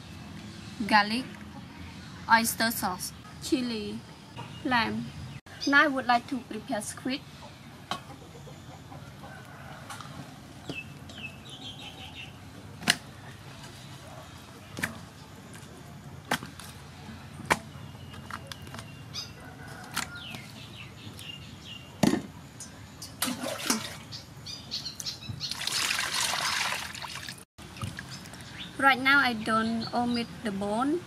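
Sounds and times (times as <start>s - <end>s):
birds chirping: 0.0s - 23.2s, 23.8s - 26.6s, 27.7s - 31.0s
water splashing into bowl: 23.2s - 24.1s, 25.5s - 28.4s.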